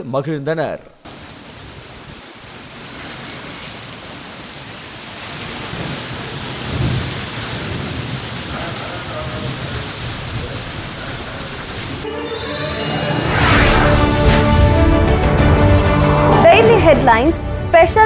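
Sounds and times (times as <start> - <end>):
heavy rain pouring: 1.1 - 17.1
low roll of thunder: 5.5 - 11.8.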